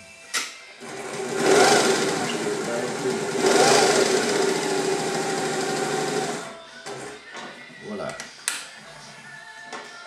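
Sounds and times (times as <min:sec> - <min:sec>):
sewing machine stitching: 0:00.8 - 0:07.0.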